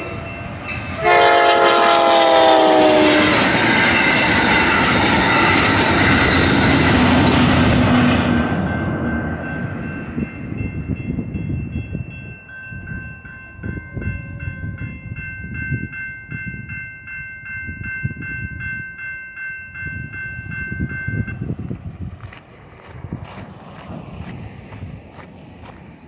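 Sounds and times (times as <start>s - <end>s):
train rumble: 0.0s - 16.8s, 19.8s - 26.0s
railroad crossing bell ringing: 0.0s - 22.4s.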